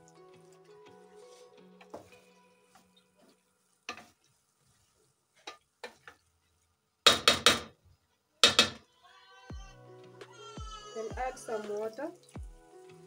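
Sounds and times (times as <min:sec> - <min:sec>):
wooden spoon stirring in pot: 0:00.2 - 0:06.7.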